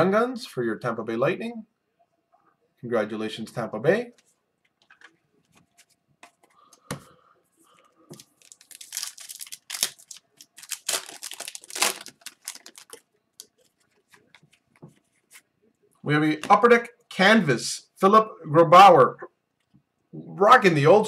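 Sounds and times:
wrapper tearing and crinkling: 0:08.2 - 0:14.1.

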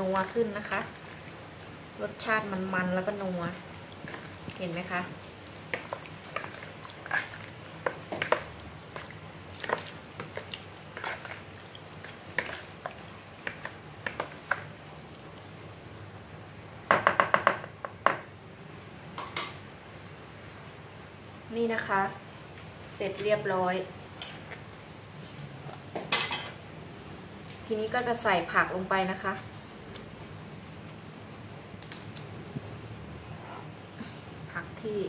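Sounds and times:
spoon mixing in plastic bowl: 0:02.2 - 0:14.7.

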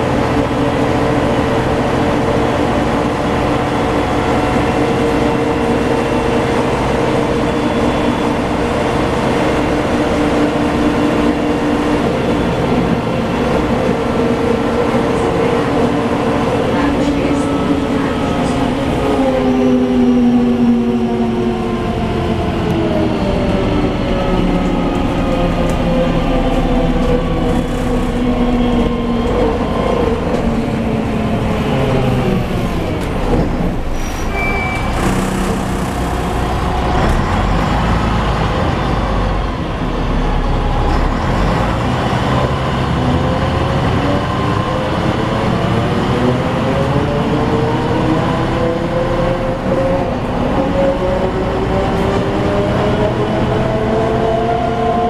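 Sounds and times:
bus engine and drivetrain whine: 0:00.0 - 0:55.0
short high beep: 0:34.2 - 0:35.0.

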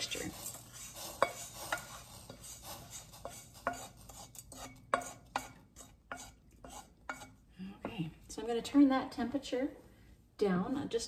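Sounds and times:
wooden spoon scraping metal skillet: 0:00.0 - 0:07.4.

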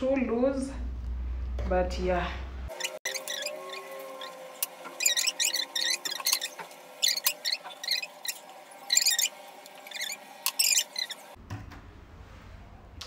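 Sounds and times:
hissing rubbing strokes: 0:02.7 - 0:11.4.

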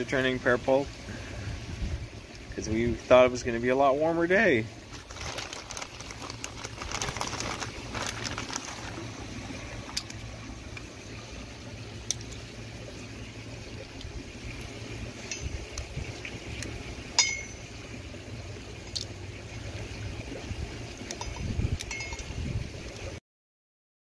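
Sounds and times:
steady low hum: 0:00.0 - 0:23.0
hands rustling plastic and cable: 0:04.9 - 0:10.2.

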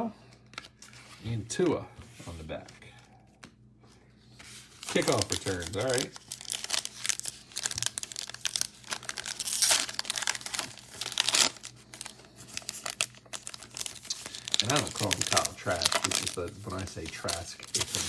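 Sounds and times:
foil wrapper crinkling: 0:04.6 - 0:18.0
foil wrapper ripping: 0:04.8 - 0:18.0.

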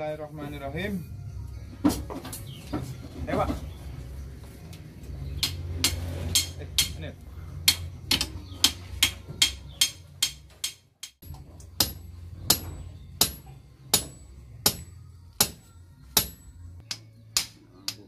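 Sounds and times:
hammer striking metal rod: 0:05.4 - 0:18.0.

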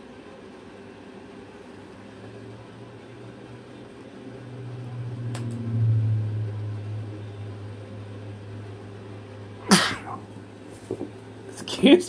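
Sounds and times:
steady low hum: 0:00.0 - 0:12.0
person sneezing: 0:09.6 - 0:10.2.

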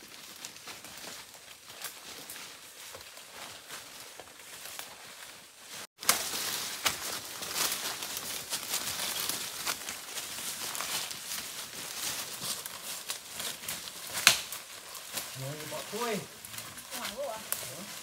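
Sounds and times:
dry leaves crinkling: 0:00.0 - 0:18.0
footsteps through undergrowth: 0:00.0 - 0:18.0
twigs crackling underfoot: 0:00.0 - 0:18.0
sharp twig snap: 0:14.2 - 0:14.5.

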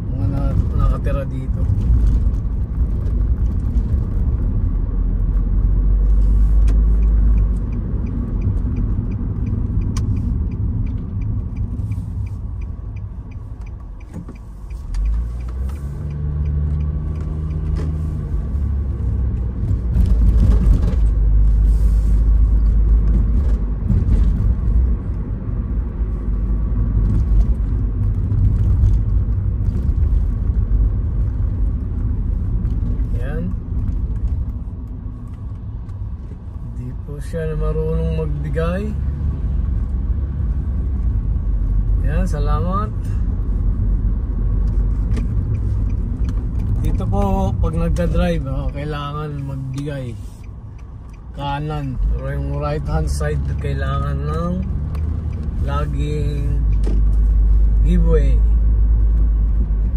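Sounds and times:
car engine and tyre rumble: 0:00.0 - 0:59.9
faint regular ticking: 0:06.6 - 0:18.6, 0:45.3 - 0:56.8.

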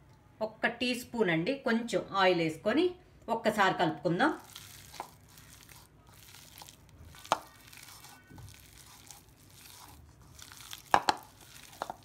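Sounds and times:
hand squishing batter: 0:04.4 - 0:12.0.

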